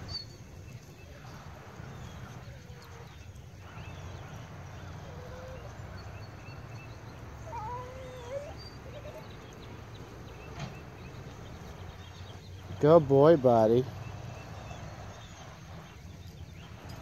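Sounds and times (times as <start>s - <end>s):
low outdoor rumble: 0.0s - 17.0s
dog whining faintly: 4.9s - 6.1s, 7.4s - 9.7s.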